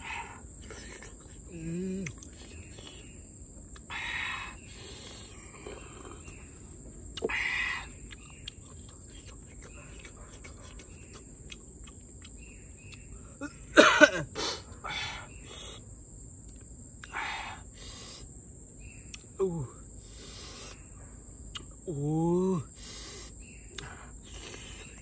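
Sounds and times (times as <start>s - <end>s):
person slurping snails: 22.8s - 25.0s.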